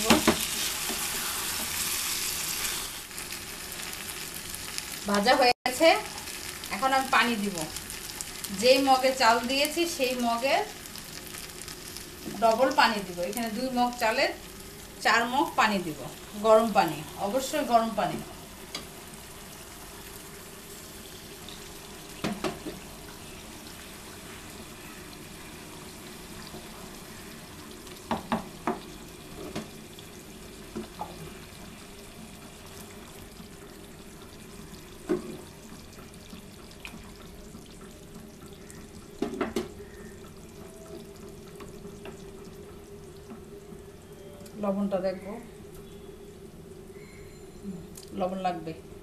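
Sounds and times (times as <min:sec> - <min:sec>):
water hissing in frying pan: 0:00.0 - 0:44.1.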